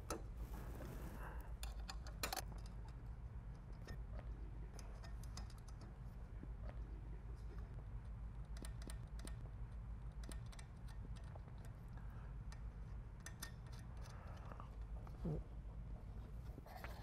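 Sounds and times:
low steady hum: 0.0 - 17.0
small metal hardware clicking: 13.2 - 14.4.

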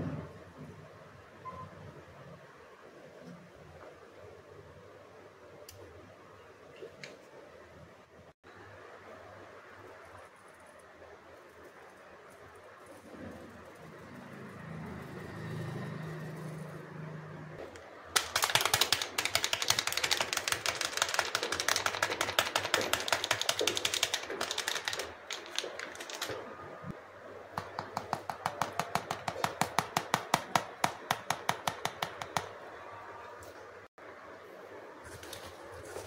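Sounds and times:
spice packet tapping: 18.2 - 26.3, 27.6 - 32.5.

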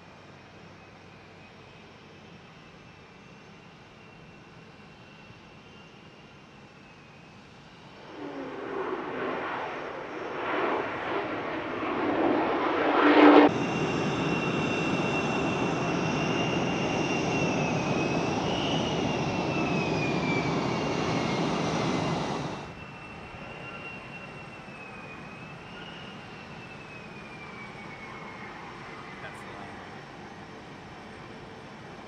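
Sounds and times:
jet engine high whine: 0.0 - 32.0
jet engine roar: 0.1 - 32.0.

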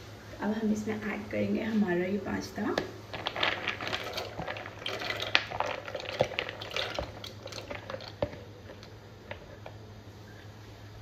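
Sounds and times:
pasta splashing into water: 3.1 - 8.4
water bubbling: 3.1 - 8.4.

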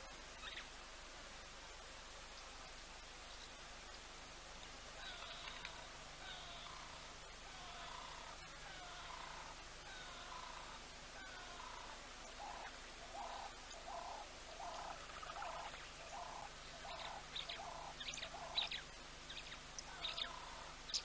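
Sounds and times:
small birds high chirps: 11.4 - 21.0.

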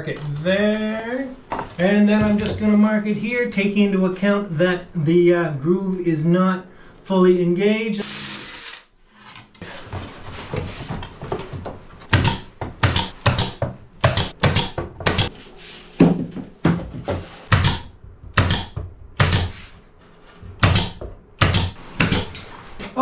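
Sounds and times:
sharp wooden knocks: 11.1 - 15.3, 17.5 - 19.6, 20.6 - 22.4.

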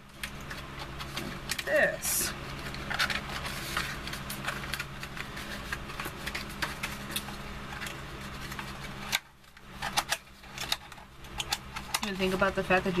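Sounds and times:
steady low hum: 0.0 - 13.0
cardboard folding clicks and rustles: 2.6 - 12.6.

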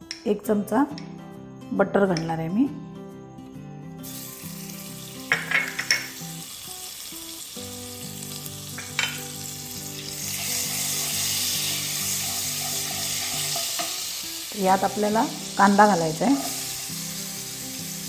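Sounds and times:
butter sizzling in frying pan: 4.0 - 18.0
spoon knocking: 5.3 - 6.2, 8.8 - 9.3.

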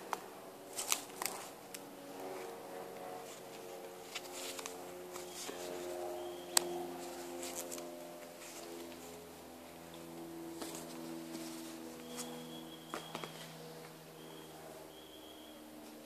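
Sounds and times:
scratchy rustles: 0.7 - 1.6, 2.3 - 9.2, 10.5 - 13.8
faint sustained tones: 5.2 - 15.9.

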